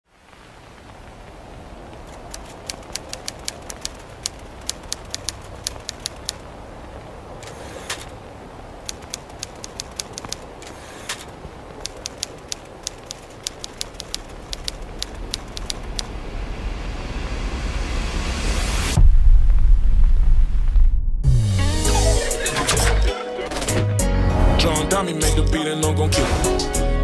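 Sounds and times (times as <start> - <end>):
low hiss and rumble: 0.1 - 23.1
typewriter keys clacking: 2.3 - 6.4, 11.8 - 16.0.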